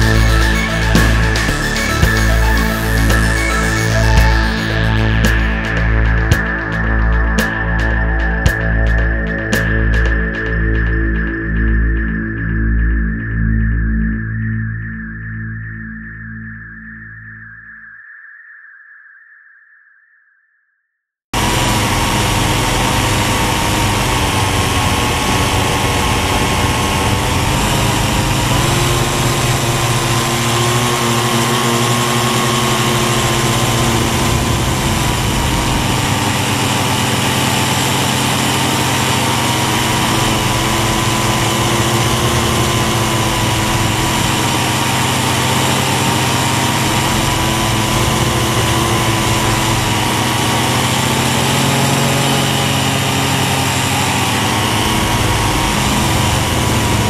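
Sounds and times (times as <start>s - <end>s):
toy drone motors buzzing: 0.0s - 7.0s, 21.4s - 57.0s.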